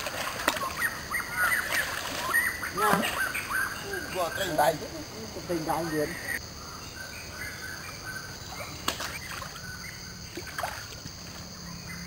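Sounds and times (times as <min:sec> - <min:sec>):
short sharp knocks or splashes: 0:00.0 - 0:00.8
stream rushing: 0:00.0 - 0:06.2
high insect drone: 0:00.2 - 0:12.0.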